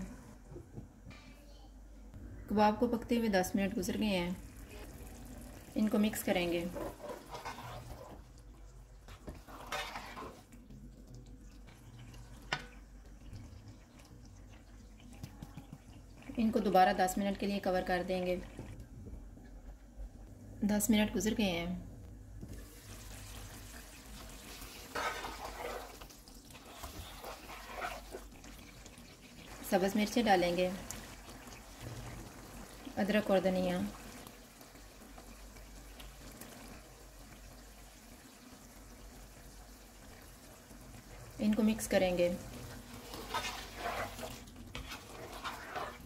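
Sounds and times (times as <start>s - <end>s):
spatula stirring thick gravy: 6.4s - 16.4s, 23.8s - 32.9s, 42.5s - 46.0s.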